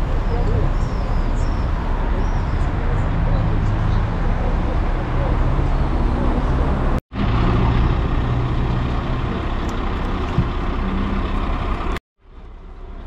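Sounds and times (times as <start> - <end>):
vehicle engine and road noise: 0.0 - 13.0.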